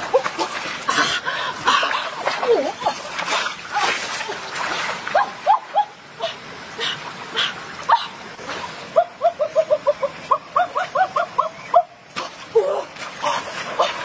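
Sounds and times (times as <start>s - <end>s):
water splashes: 0.0s - 14.0s.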